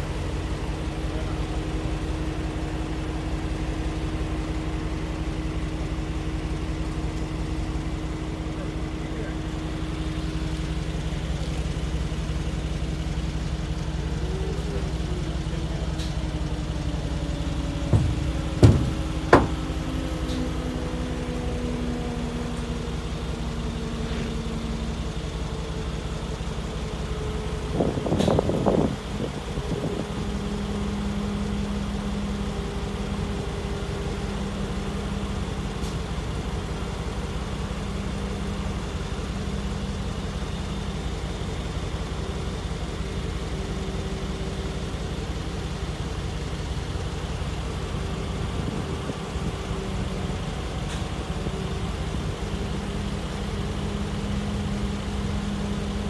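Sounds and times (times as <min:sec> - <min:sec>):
vehicle engine idling: 0:00.0 - 0:56.0
sharp knocks: 0:17.9 - 0:19.7.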